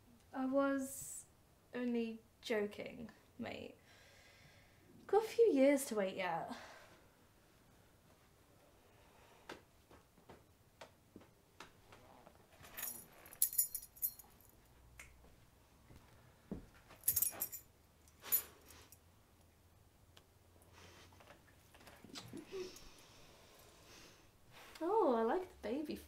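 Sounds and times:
metal keys jangling: 12.6s - 14.6s, 16.9s - 19.0s.

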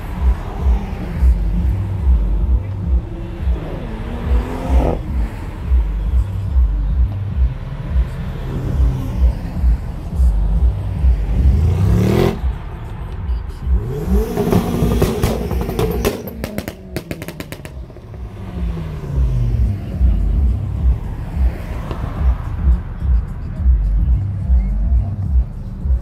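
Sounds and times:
music with thumping bass beat: 0.0s - 12.6s, 18.6s - 26.0s
car engine revving: 0.0s - 26.0s.

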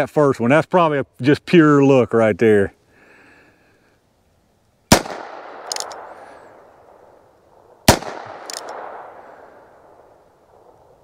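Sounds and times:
revolver shots with echo: 4.9s - 6.5s, 7.9s - 9.6s.

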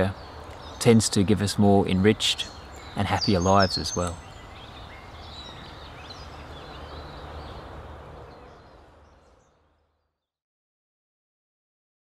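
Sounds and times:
bird chirps: 0.0s - 10.3s.

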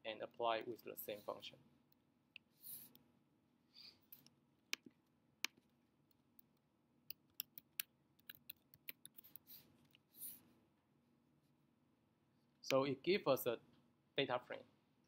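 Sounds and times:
computer keyboard typing: 7.1s - 9.4s.

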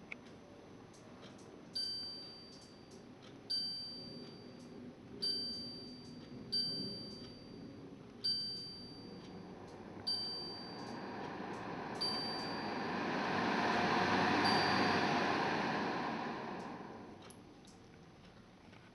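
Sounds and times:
fan rush of air: 4.9s - 17.4s.

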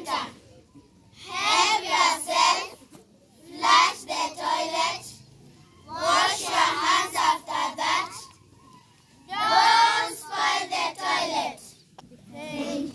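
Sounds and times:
children singing: 5.9s - 8.3s, 9.3s - 11.6s.

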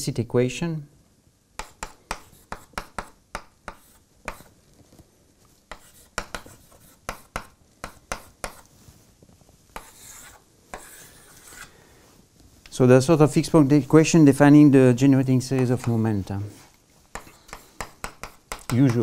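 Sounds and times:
chalk scraping: 1.6s - 4.6s, 5.7s - 9.0s, 9.7s - 11.8s, 15.6s - 19.0s
chalk tapping on blackboard: 1.6s - 4.6s, 5.7s - 8.7s, 9.7s - 11.7s, 15.5s - 16.1s, 17.1s - 19.0s.

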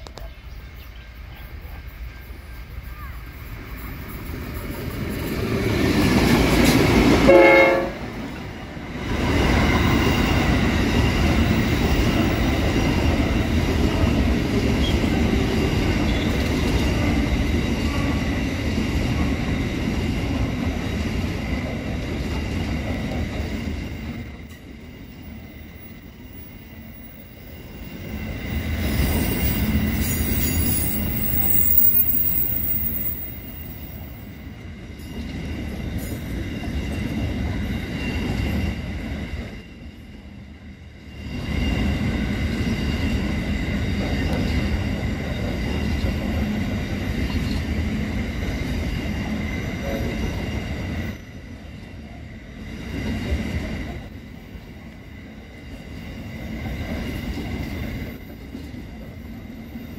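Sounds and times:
train wheels rumbling on rail: 0.0s - 59.9s
locomotive horn: 7.2s - 8.2s
high wheel squeal: 25.4s - 34.2s.

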